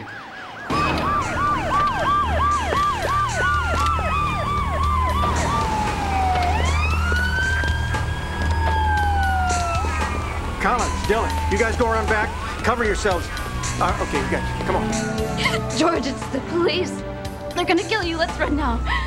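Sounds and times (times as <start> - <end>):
police siren yelping: 0.0 - 16.5, 18.3 - 19.0
police sirens wailing: 0.0 - 19.0.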